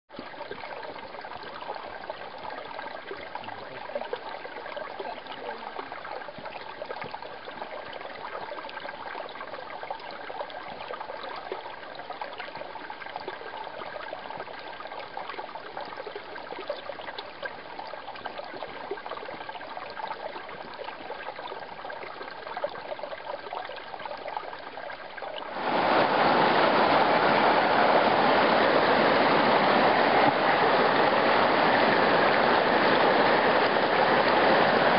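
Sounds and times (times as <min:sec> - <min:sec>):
creek water trickling over rocks: 0:00.1 - 0:34.9
whitewater stream rushing: 0:25.5 - 0:34.9.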